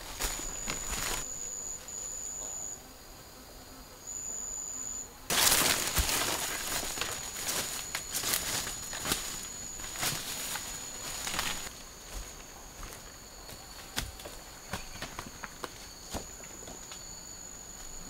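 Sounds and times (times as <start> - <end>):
footsteps crunching dry leaves: 0.0 - 1.3, 5.3 - 15.2
brushing past foliage: 0.0 - 2.6, 5.3 - 14.4
high-pitched insect trill: 0.0 - 18.0.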